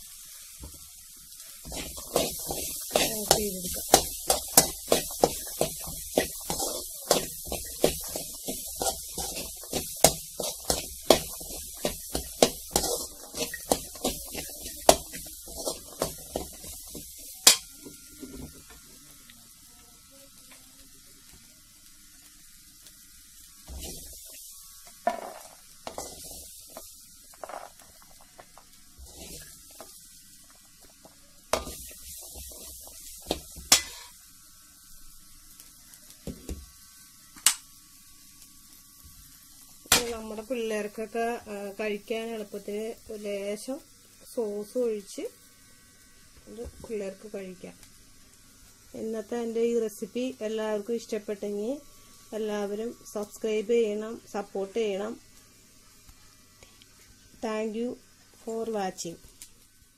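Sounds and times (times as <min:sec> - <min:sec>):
moist grains rustling: 0:00.0 - 0:17.5, 0:23.4 - 0:33.6.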